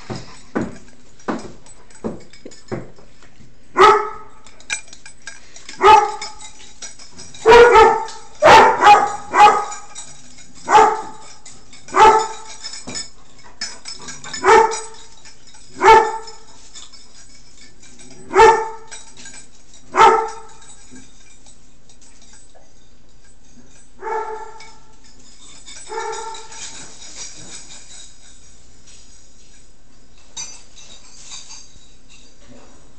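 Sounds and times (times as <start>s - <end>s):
dog barking: 3.8s - 4.3s, 5.8s - 6.2s, 7.4s - 9.9s, 10.7s - 11.2s, 11.9s - 12.4s, 14.4s - 14.9s, 15.8s - 16.2s, 18.3s - 18.9s, 20.0s - 20.4s, 24.0s - 24.6s.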